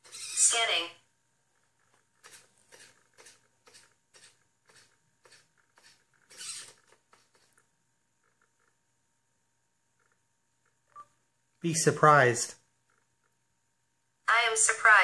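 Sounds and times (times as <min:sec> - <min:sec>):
servo whirring: 0:02.2 - 0:07.6.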